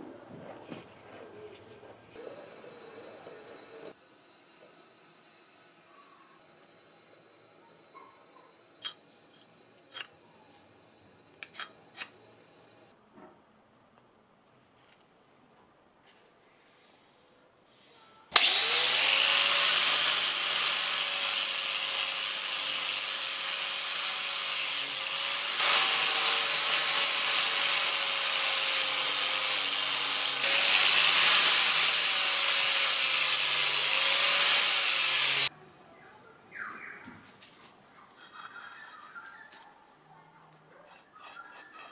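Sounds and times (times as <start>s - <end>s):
angle grinder grinding metal: 18.4s - 35.5s.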